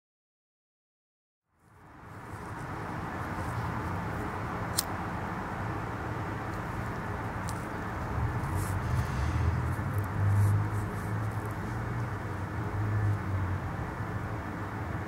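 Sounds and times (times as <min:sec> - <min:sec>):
background rumble and hiss: 0:01.7 - 0:15.0
sharp high click: 0:04.7 - 0:05.0.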